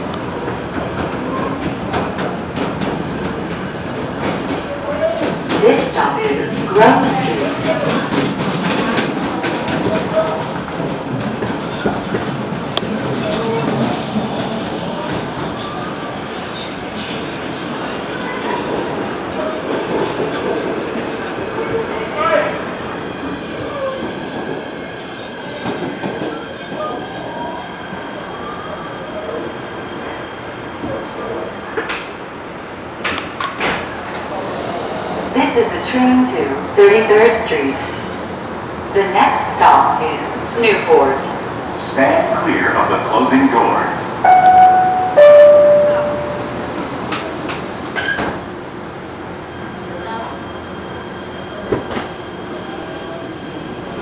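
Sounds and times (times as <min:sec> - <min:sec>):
subway wheels rumbling on rail: 0:00.0 - 0:54.0
high wheel squeal: 0:31.2 - 0:33.2.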